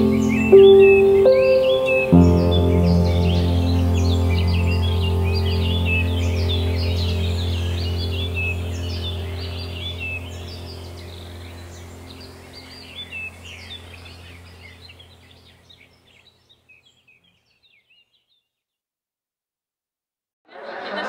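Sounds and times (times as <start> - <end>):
steady low hum: 0.0 - 16.1
small birds chirping: 0.0 - 18.8.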